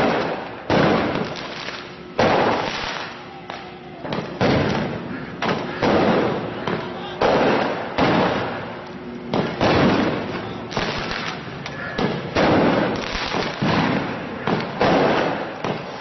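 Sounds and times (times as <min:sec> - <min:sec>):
loud echoing bangs: 0:00.0 - 0:03.2, 0:04.0 - 0:16.0.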